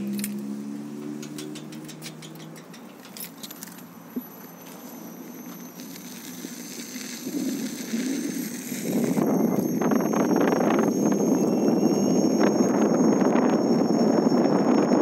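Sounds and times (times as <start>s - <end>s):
light clicks and rattles: 1.0s - 3.9s
wind rushing on microphone: 6.7s - 15.0s.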